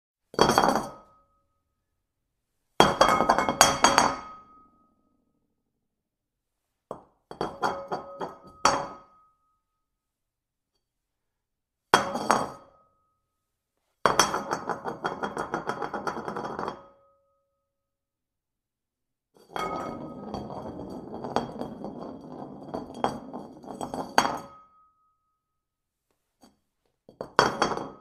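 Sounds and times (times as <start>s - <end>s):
porcelain bowl clattering: 19.6s - 24.5s, 27.2s - 28.0s.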